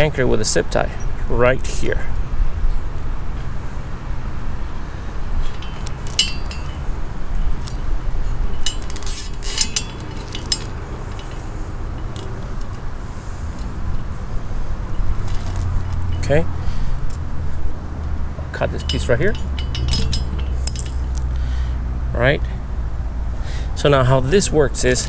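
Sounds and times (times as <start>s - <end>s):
steady low rumble: 0.0s - 25.0s
chain clinking and rattling: 5.2s - 12.9s, 14.9s - 16.4s, 18.7s - 21.4s.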